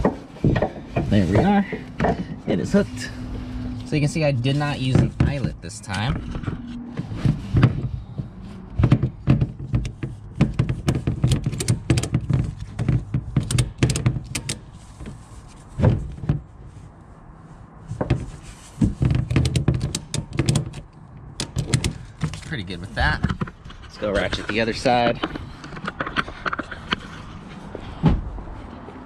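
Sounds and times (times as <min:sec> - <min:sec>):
tie-down strap and metal hooks: 0:08.8 - 0:15.2.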